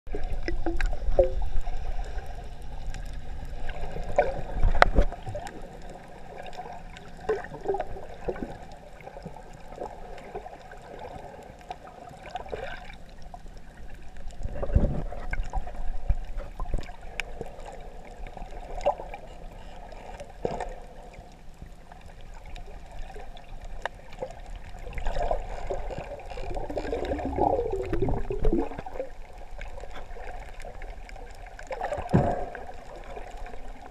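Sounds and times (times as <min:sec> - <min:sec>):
muffled underwater sloshing: 0:00.1 - 0:33.9
underwater knocks: 0:31.9 - 0:32.6.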